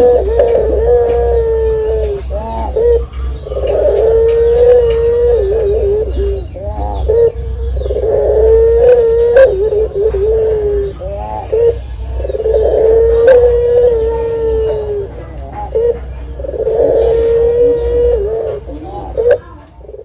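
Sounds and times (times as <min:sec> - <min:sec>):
dove cooing: 0:00.0 - 0:20.0
low background hum: 0:00.0 - 0:20.0.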